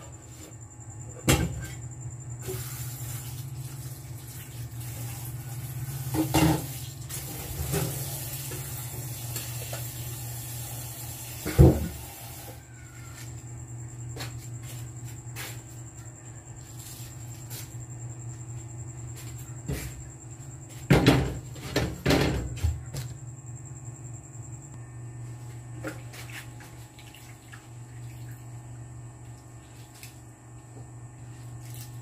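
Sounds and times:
steady low hum: 0.0 - 32.0
pots clattering and knocking: 1.2 - 1.8, 6.1 - 6.8.

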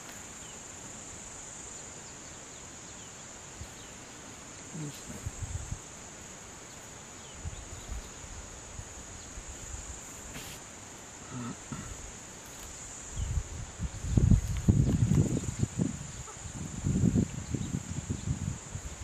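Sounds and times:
insects droning: 0.0 - 19.0
elephant trunk tugging grass: 10.2 - 10.6.

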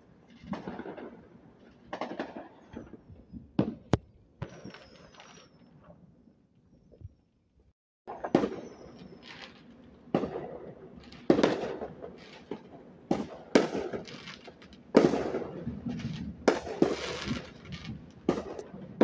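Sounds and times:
fireworks bangs: 1.9 - 5.6, 8.1 - 19.0
fireworks crackling: 3.8 - 5.6, 8.2 - 19.0.

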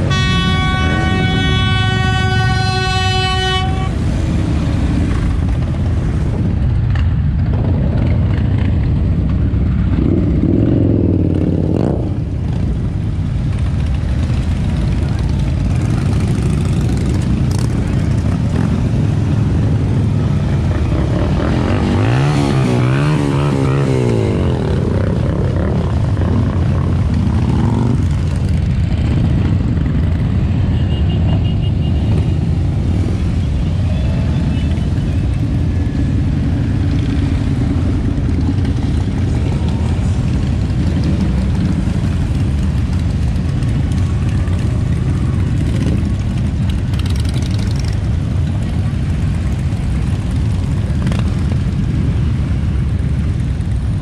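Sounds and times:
motorcycle engine revving: 0.0 - 30.6, 31.9 - 53.8
motorcycle engines rumbling: 0.0 - 54.0.

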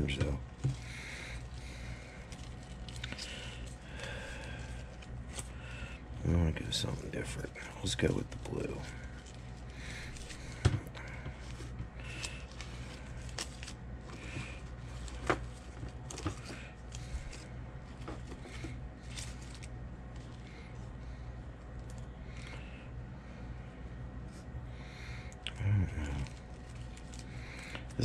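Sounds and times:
steady low hum: 0.0 - 28.0
small packets clicking and rustling: 0.2 - 5.6, 7.8 - 20.7, 26.0 - 28.0.

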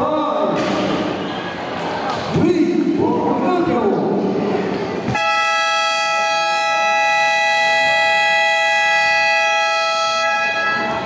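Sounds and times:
scoreboard buzzer blast: 5.1 - 11.0.

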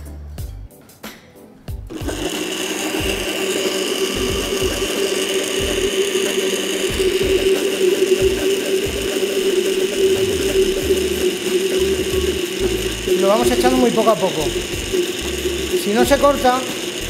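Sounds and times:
blender motor running: 1.9 - 17.0.

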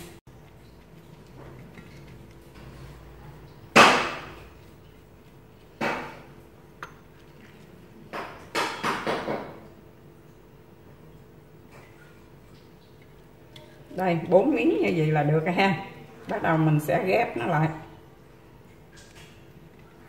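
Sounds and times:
knocks on metal tray: 8.2 - 9.6.

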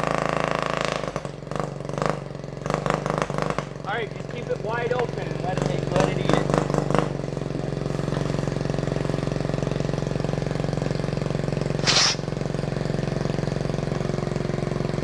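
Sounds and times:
quad engine running: 0.0 - 15.0
loud burst of hiss: 11.8 - 12.3.

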